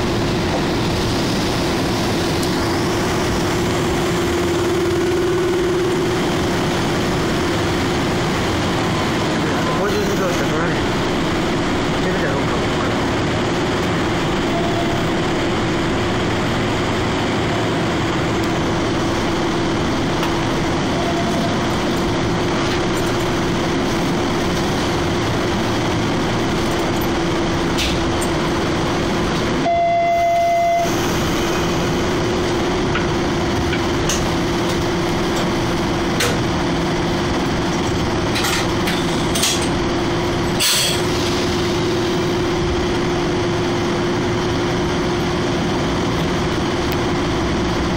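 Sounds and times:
electric train hum: 0.0s - 47.9s
clear tone: 29.6s - 30.9s.

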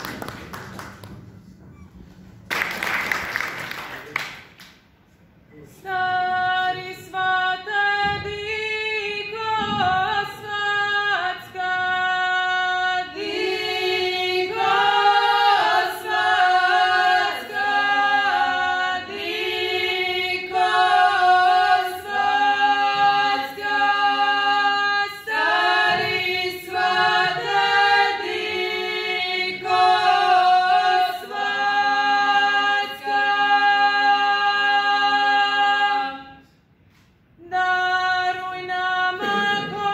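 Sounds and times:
women singing in harmony: 5.7s - 36.5s, 37.4s - 39.9s.

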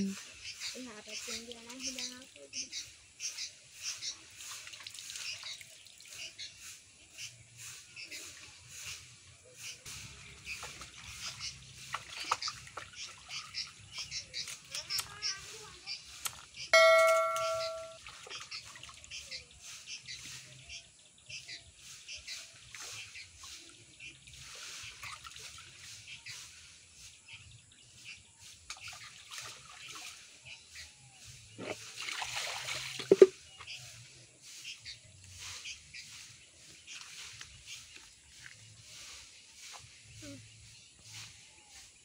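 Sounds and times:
birds chirping: 0.0s - 4.4s, 5.2s - 25.2s, 33.3s - 42.0s
water splashing onto ground: 4.4s - 6.2s, 10.0s - 15.1s, 31.8s - 33.4s
metal pail ringing: 16.8s - 18.0s
water sloshing: 31.6s - 33.4s
pail clanking: 32.9s - 33.4s.

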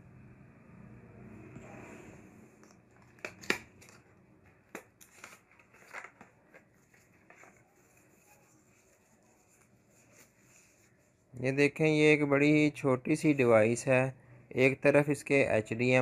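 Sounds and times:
packaging clicking and scraping: 2.6s - 7.7s
wrapping rustling: 4.9s - 11.2s.

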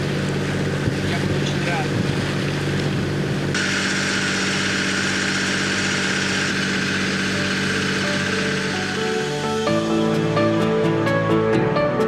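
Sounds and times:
boat engine running: 0.0s - 11.6s.

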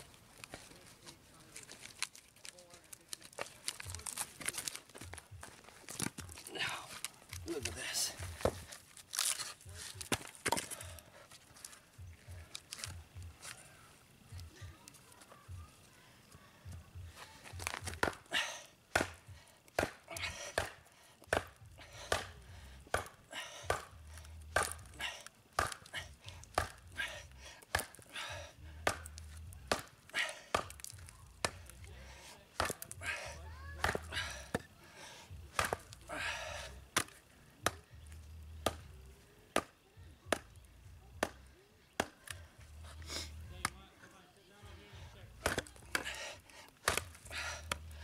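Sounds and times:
knife chopping into hard wood: 18.9s - 19.2s, 19.8s - 21.5s, 22.1s - 23.9s, 24.5s - 24.9s, 25.6s - 25.9s, 26.5s - 26.8s, 27.7s - 28.0s, 28.8s - 29.1s, 29.7s - 29.9s, 30.5s - 31.7s, 32.6s - 32.9s, 33.8s - 34.6s, 35.6s - 35.9s, 42.0s - 42.4s, 45.4s - 46.1s, 46.8s - 47.8s
wood splintering: 28.8s - 31.7s, 45.4s - 47.6s.

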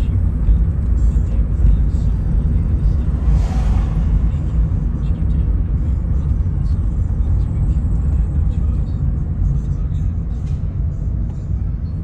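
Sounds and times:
car road noise: 0.0s - 12.0s
passing truck whoosh: 2.0s - 6.5s.

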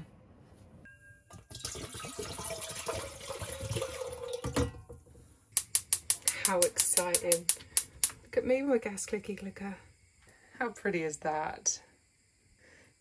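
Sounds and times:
water poured into kettle: 1.3s - 4.7s.

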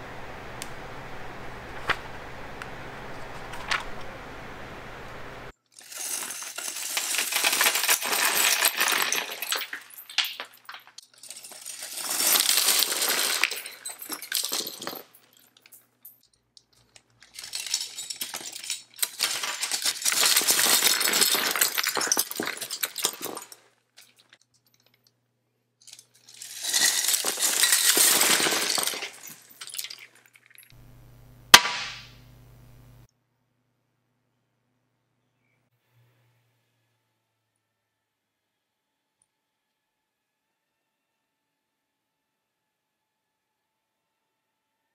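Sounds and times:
plastic pieces clattering: 5.8s - 15.8s, 16.6s - 24.9s, 25.8s - 30.8s.

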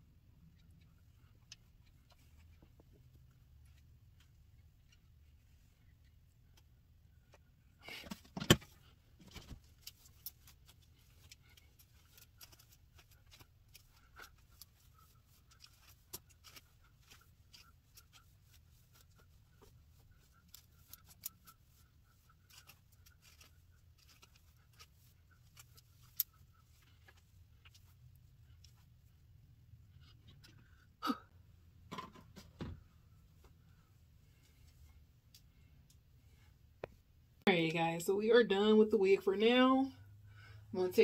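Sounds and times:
comb drawn through wig: 8.7s - 28.8s.

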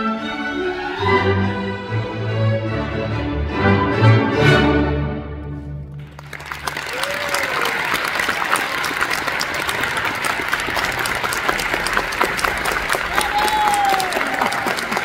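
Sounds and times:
audience applause: 6.0s - 15.0s.

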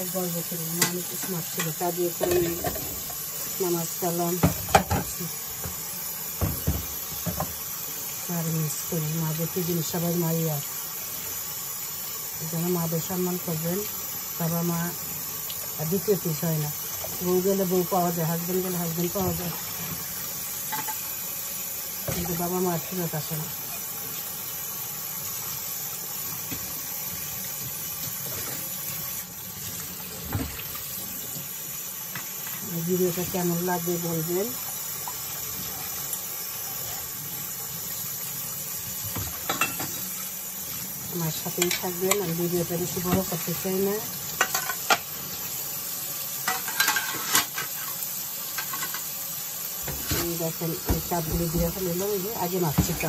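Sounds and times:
cups being rinsed: 0.0s - 53.0s
dishes clinking and knocking: 2.2s - 3.2s, 4.4s - 5.8s, 6.4s - 7.6s, 39.1s - 40.0s, 49.8s - 52.0s, 52.7s - 53.0s
tap running into steel sink: 6.4s - 7.6s, 49.8s - 51.9s.

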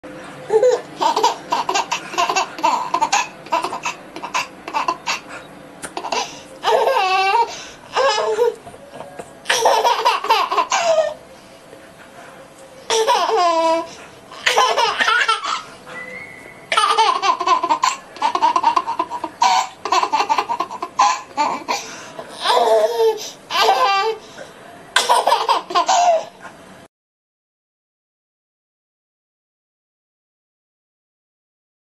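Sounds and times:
baby laughing: 0.5s - 11.2s, 12.9s - 15.8s, 16.7s - 24.2s, 25.0s - 26.5s.

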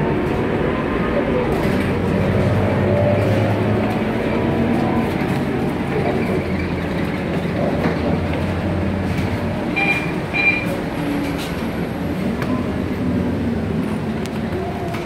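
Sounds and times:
bus diesel engine droning: 0.0s - 15.0s
short high beeps: 9.8s - 10.7s.

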